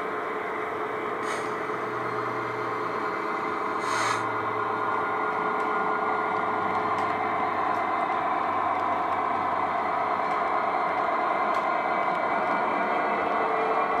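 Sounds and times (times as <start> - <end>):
model train mechanical hum: 0.0 - 14.0
short hiss: 1.2 - 1.5, 3.8 - 4.3.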